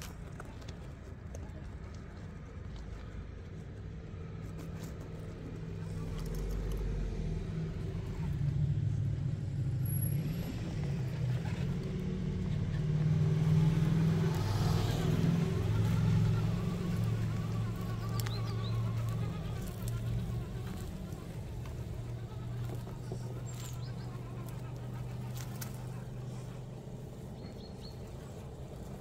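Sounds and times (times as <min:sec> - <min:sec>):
tyres crunching over gravel: 0:10.4 - 0:29.0
rc car motor whining: 0:14.2 - 0:25.8.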